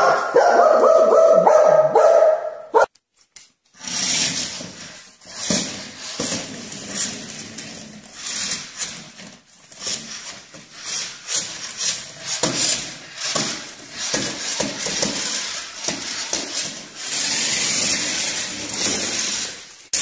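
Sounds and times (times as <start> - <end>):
toy car whirring: 3.7 - 20.0.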